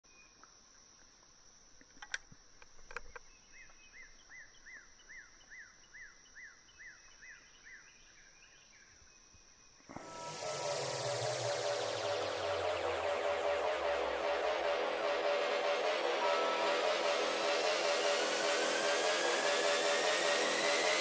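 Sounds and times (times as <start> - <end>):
electronic music: 9.9 - 21.0
high-pitched insect drone: 9.9 - 21.0.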